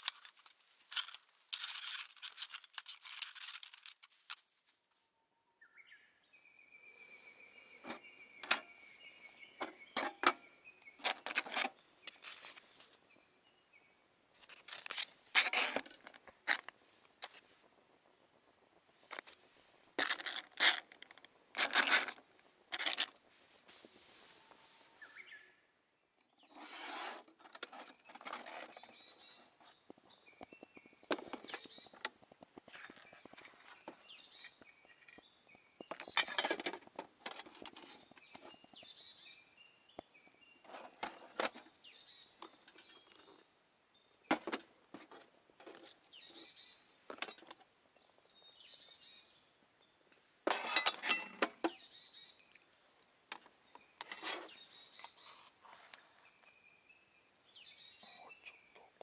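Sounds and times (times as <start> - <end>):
small birds chirping: 0.0 - 4.8, 5.6 - 15.2, 24.3 - 50.2, 50.8 - 59.0
plastic food packet rustling: 0.0 - 5.1
metal lids clinking: 50.5 - 51.7.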